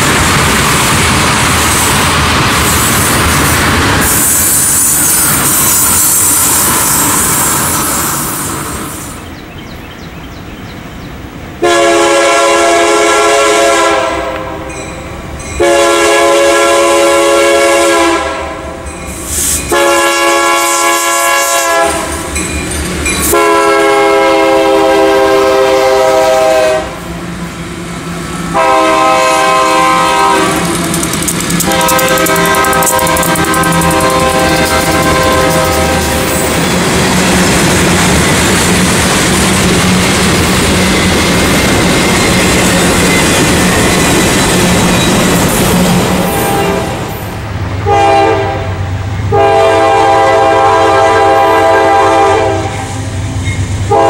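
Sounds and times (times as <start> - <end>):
locomotive air horn blasts: 11.6 - 14.7, 15.6 - 18.8, 19.7 - 22.2, 23.3 - 27.1, 28.5 - 30.7, 31.6 - 36.5, 46.3 - 47.1, 47.8 - 53.1
freight cars rolling past: 29.2 - 47.9.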